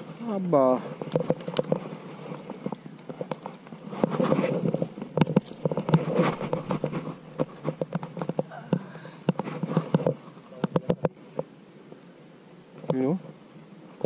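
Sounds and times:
leafy stems rustling and crackling: 0.0 - 12.1.

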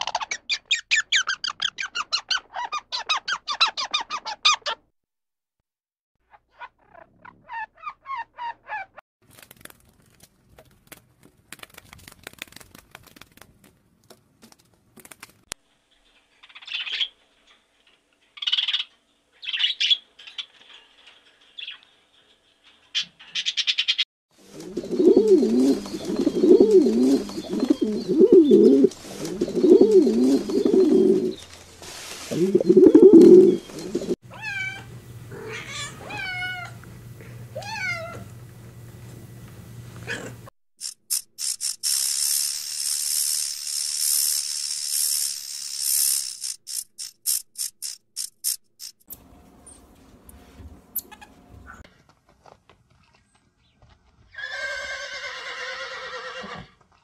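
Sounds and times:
cat meowing: 34.3 - 36.8, 37.6 - 38.3.

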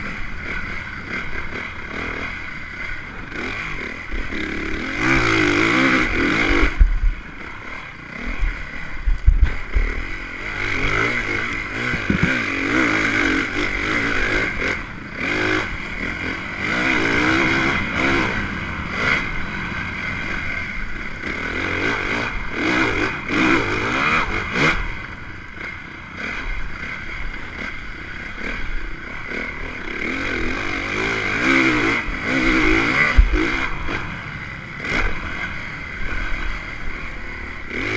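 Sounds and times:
dirt bike engine revving: 0.0 - 37.9
bike knocking and rattling: 6.5 - 7.6, 8.2 - 12.8
wind noise: 8.4 - 9.9, 11.8 - 12.5.

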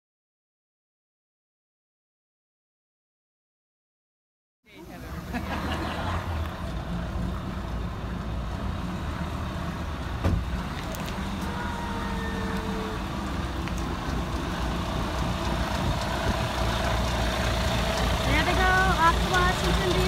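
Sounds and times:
diesel engine idling: 4.8 - 20.0.

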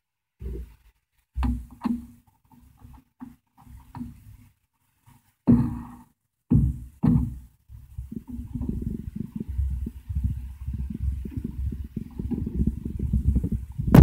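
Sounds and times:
dull thumps with hollow ring: 1.4 - 4.2, 5.4 - 9.6.

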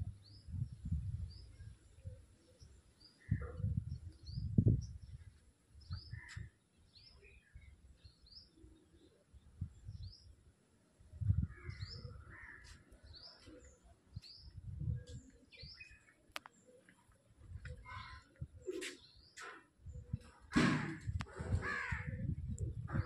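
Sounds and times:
small birds chirping: 11.2 - 20.6.

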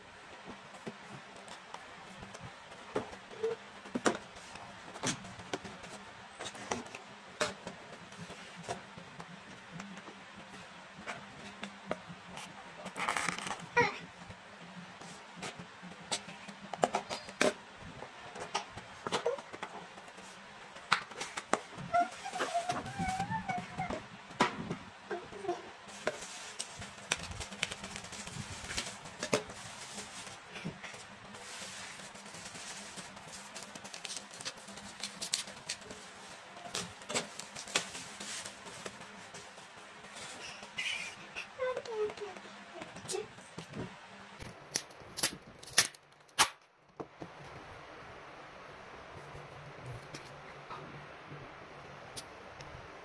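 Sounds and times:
bubble wrap rustling and crackling: 12.3 - 14.0, 19.2 - 23.9, 25.4 - 43.6
cardboard and tape crinkling: 12.4 - 14.0, 25.9 - 40.9.

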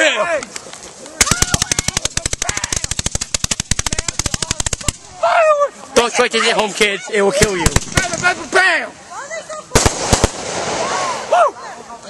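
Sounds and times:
firework sharp cracks: 1.2 - 5.2, 7.6 - 8.4, 9.8 - 11.3.

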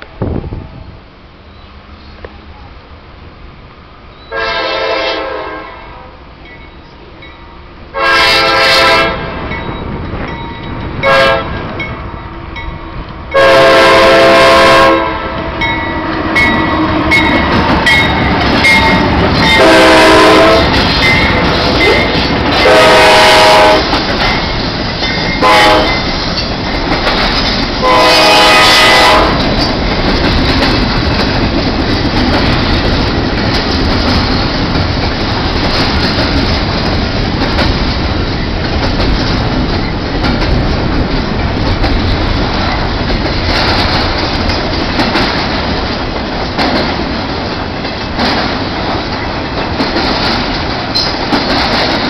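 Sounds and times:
locomotive air horn blasts: 4.3 - 6.2, 7.9 - 9.4, 11.0 - 11.7, 13.3 - 17.6, 19.0 - 20.8, 22.6 - 23.9, 25.4 - 26.0, 27.8 - 29.4
train wheels clattering over rail joints: 12.6 - 52.0.

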